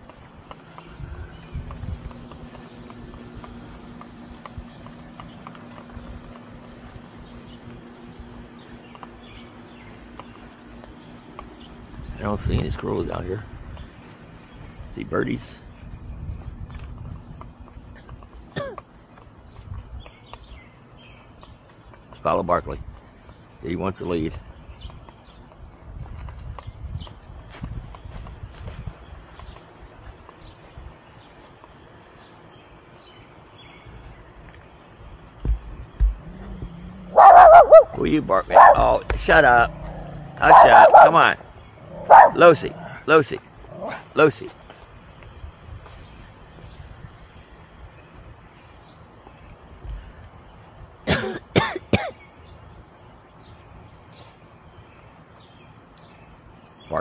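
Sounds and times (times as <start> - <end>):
soft footsteps on grass: 0.0 - 50.6
faint bird and insect chirps: 0.0 - 57.0
low thump: 35.4 - 36.8
small dog yapping: 36.6 - 38.9, 39.7 - 41.2, 41.9 - 42.4.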